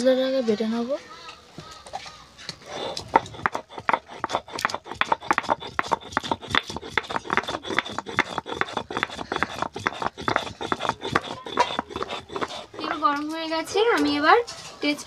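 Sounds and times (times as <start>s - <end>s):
grinding stone scraping: 2.4s - 14.4s.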